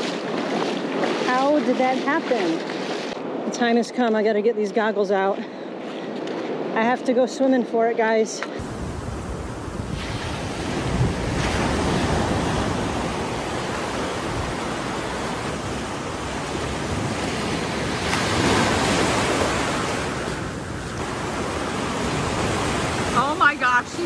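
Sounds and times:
ocean waves breaking: 0:00.0 - 0:03.5, 0:08.6 - 0:24.0.

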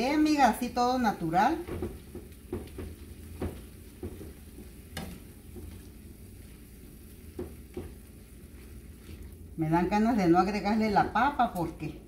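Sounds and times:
soft sizzle of simmering pan: 0:00.0 - 0:12.0
spoon scraping frying pan: 0:01.6 - 0:09.3.

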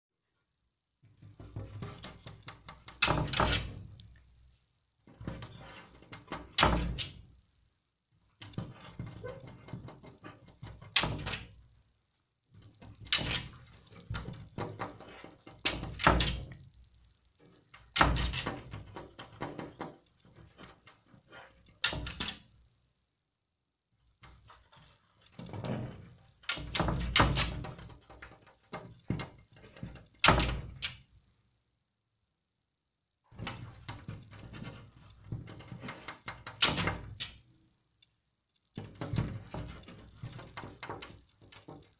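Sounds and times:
glass pane rattling in frame: 0:08.4 - 0:11.5, 0:12.8 - 0:16.6, 0:17.8 - 0:20.7.

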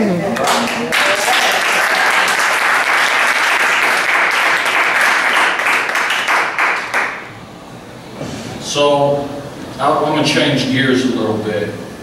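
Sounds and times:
audience applauding: 0:00.4 - 0:07.2.

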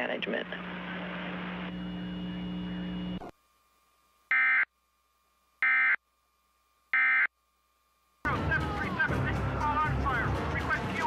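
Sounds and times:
low hum: 0:00.5 - 0:08.2.

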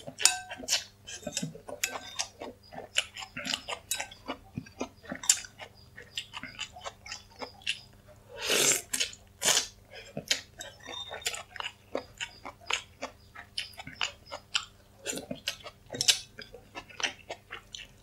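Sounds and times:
wet chewing and lip smacks: 0:00.6 - 0:07.9, 0:10.0 - 0:18.0.

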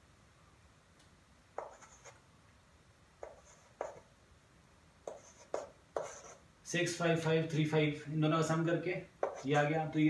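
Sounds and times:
chalk tapping and scratching: 0:01.6 - 0:02.2, 0:03.2 - 0:04.1, 0:05.0 - 0:06.4, 0:09.2 - 0:09.7.

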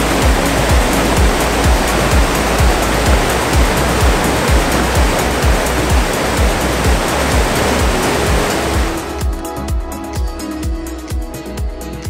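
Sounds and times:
waterfall rushing: 0:00.0 - 0:09.3
music with kick drum beat: 0:00.0 - 0:12.0.

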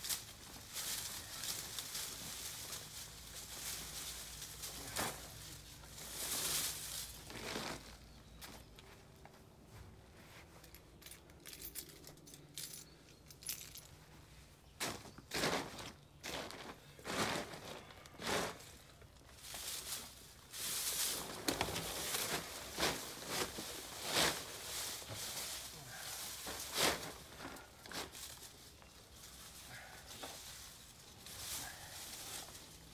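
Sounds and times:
root ball scraping on plastic tarp: 0:06.0 - 0:08.1, 0:17.1 - 0:18.8.

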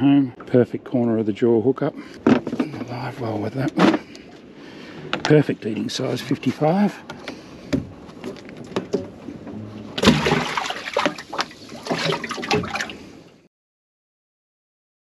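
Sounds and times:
fish splashing in water: 0:10.0 - 0:13.1.

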